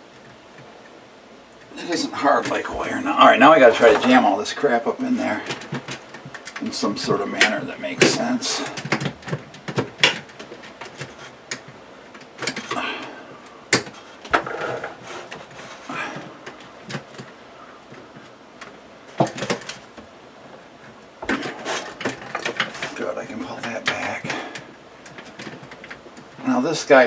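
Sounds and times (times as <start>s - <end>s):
plastic and wire handling clicks: 8.7s - 12.8s.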